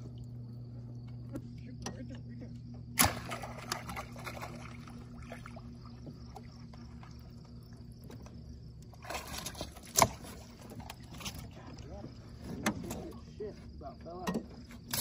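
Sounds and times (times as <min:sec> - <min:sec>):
steady low hum: 0:00.0 - 0:15.0
water splashing: 0:03.0 - 0:13.0.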